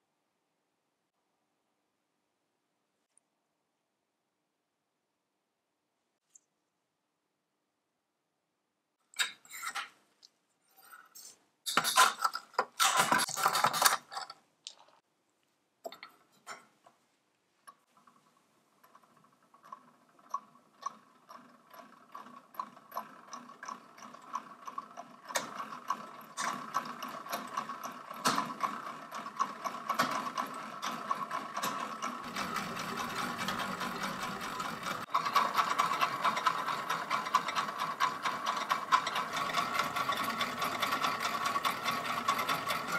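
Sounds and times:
sharp metallic clicks and rattles: 11.7s - 15.0s, 18.8s - 42.9s
clockwork gears whirring and ticking: 17.7s - 42.9s.

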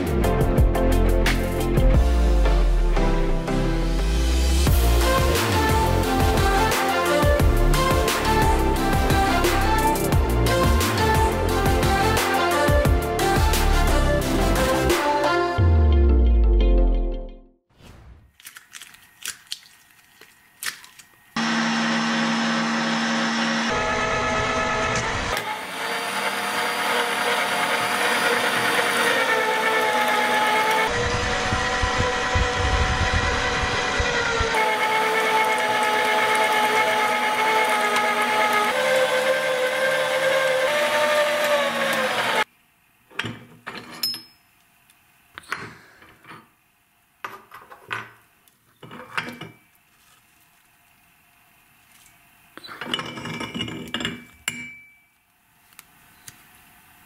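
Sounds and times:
electric meat grinder running: 21.4s - 42.5s.

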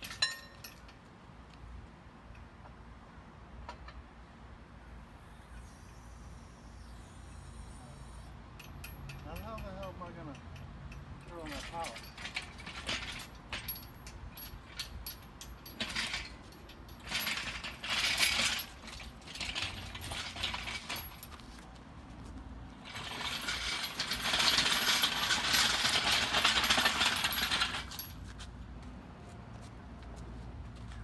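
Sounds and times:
chains clinking and rattling: 0.0s - 0.9s, 11.3s - 21.6s, 22.8s - 28.4s
casters rolling on pavement: 11.3s - 31.0s.

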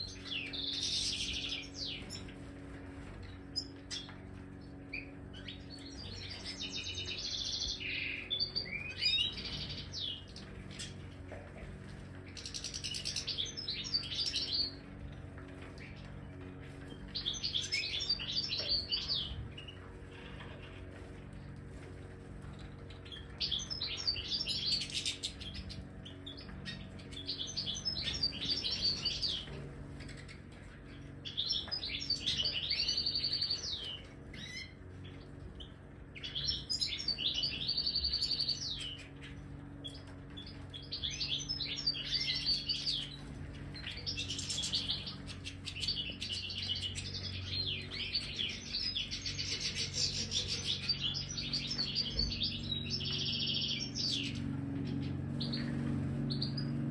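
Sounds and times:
goldfinches twittering: 0.0s - 4.3s, 11.8s - 15.0s, 15.8s - 21.0s, 23.0s - 56.9s.

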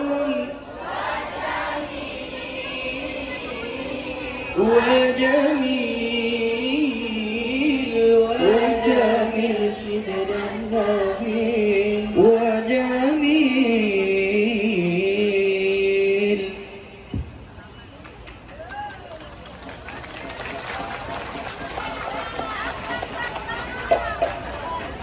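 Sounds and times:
men singing through a microphone: 0.0s - 2.1s, 4.1s - 17.0s.

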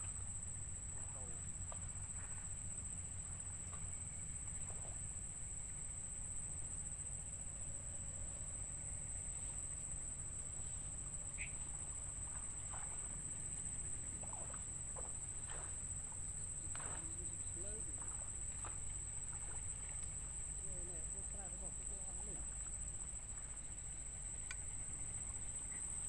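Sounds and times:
low steady rumble: 0.0s - 26.0s
faint chirps: 11.3s - 11.8s.

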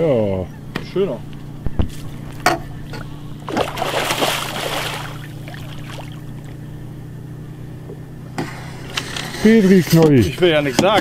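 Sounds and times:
steady low hum: 0.0s - 11.0s
water splashing: 1.9s - 6.6s.

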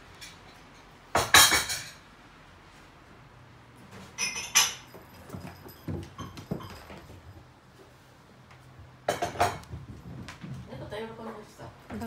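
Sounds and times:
cat paws thudding and scrambling: 4.8s - 7.6s, 9.1s - 12.0s.

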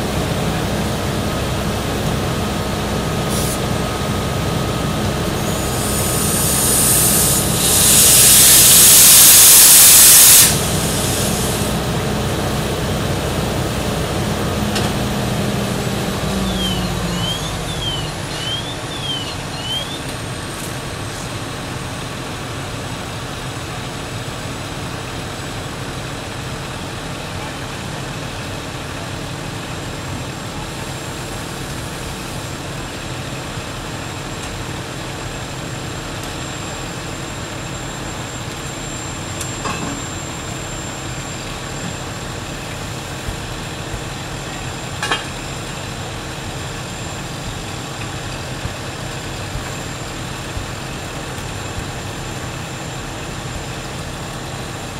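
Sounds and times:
diesel engine droning: 0.0s - 54.9s
air hissing: 3.3s - 3.7s, 5.3s - 11.9s.

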